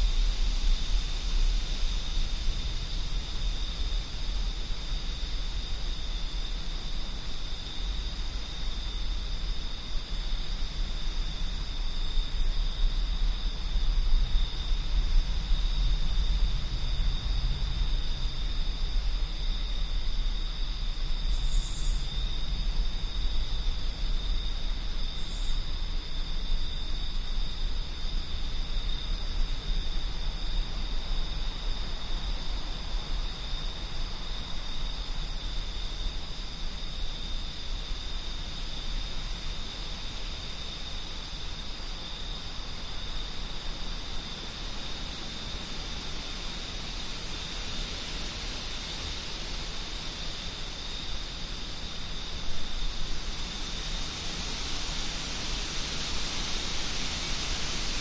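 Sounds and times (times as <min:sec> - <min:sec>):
crickets trilling: 0:00.0 - 0:58.0.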